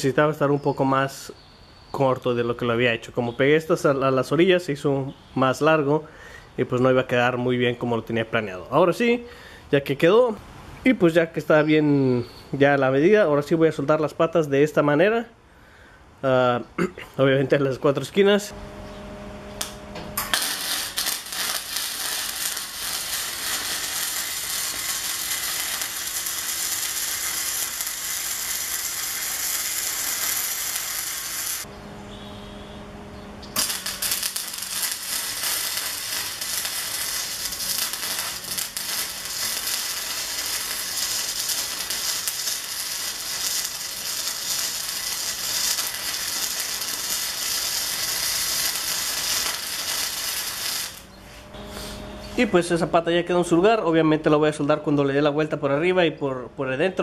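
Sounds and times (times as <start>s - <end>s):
low hum: 18.5s - 52.6s
arc welding crackling sizzle: 19.5s - 31.7s, 33.4s - 51.1s.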